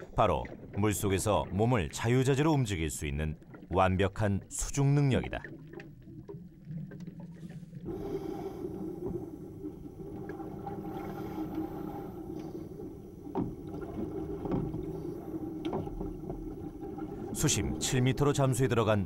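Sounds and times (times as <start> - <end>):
diver breathing through regulator: 7.4 - 9.8, 10.8 - 13.2.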